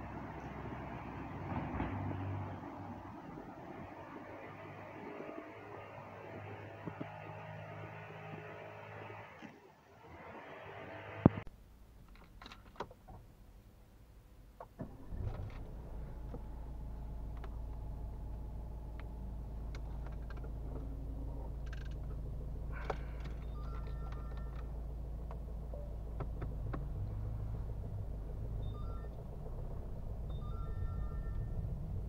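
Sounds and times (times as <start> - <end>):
diesel engine idling: 14.9 - 32.0
scattered clicks: 22.8 - 25.4.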